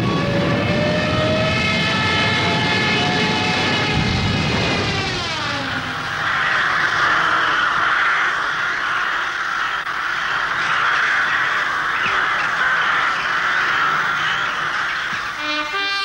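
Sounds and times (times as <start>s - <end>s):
flock of birds calling: 5.6s - 15.8s.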